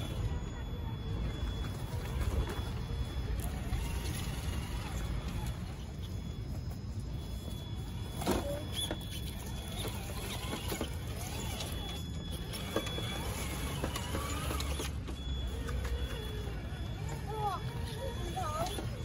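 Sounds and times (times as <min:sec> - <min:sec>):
electric motor whining: 0:00.0 - 0:19.0.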